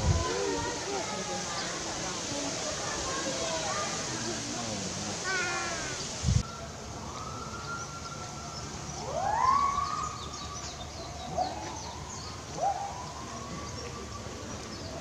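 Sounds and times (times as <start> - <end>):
distant siren wailing: 6.4 - 15.0.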